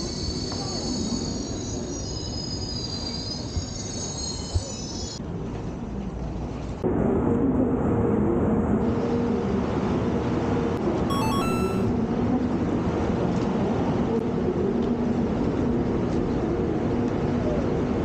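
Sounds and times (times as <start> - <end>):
train wheels squealing: 0.0 - 5.2.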